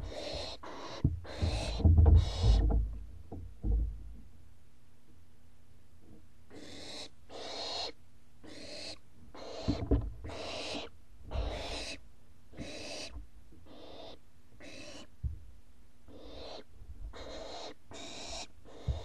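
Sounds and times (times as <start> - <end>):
owls hissing: 0.0 - 2.8, 6.5 - 12.0, 12.6 - 13.1, 13.7 - 15.1, 16.1 - 19.0
low thumps: 0.0 - 4.3.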